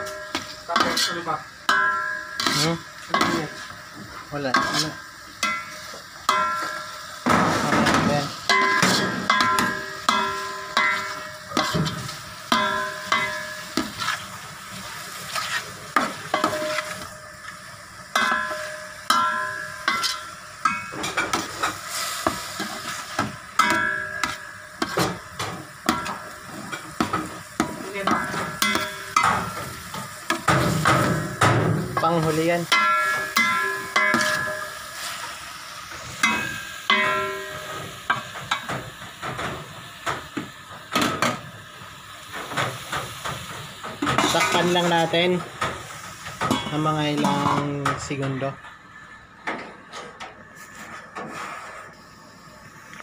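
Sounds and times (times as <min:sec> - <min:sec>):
pot ringing: 0:00.0 - 0:03.5, 0:04.6 - 0:07.2, 0:08.5 - 0:11.8, 0:12.5 - 0:13.9, 0:16.3 - 0:17.4, 0:18.1 - 0:21.4, 0:23.5 - 0:24.9, 0:27.9 - 0:29.6, 0:32.7 - 0:34.9, 0:36.2 - 0:38.6, 0:46.5 - 0:47.8
frying sizzle: 0:00.0 - 0:53.0.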